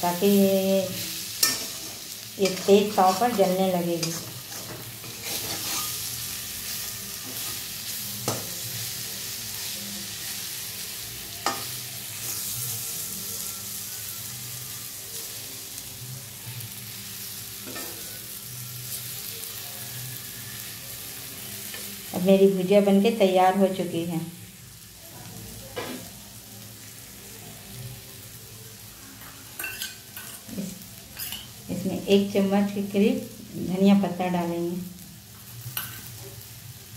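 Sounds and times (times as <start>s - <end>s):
food sizzling in oil: 0.0s - 36.9s
spatula scraping a pan: 1.2s - 8.5s.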